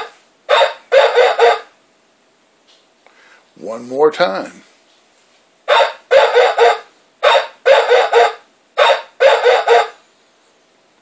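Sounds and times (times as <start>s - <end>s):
toy dog barking through speaker: 0.0s - 1.7s, 5.7s - 10.0s.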